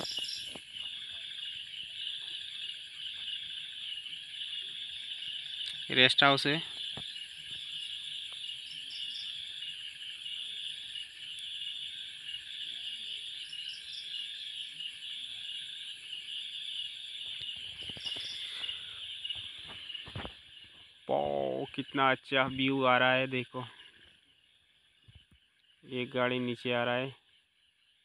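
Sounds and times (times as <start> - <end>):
insects chorus: 0.0 - 28.0.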